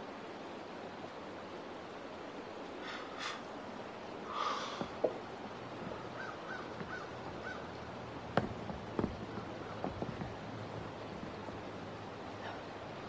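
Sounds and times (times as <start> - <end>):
steady background hiss: 0.0 - 13.0
light knocks: 4.7 - 12.1.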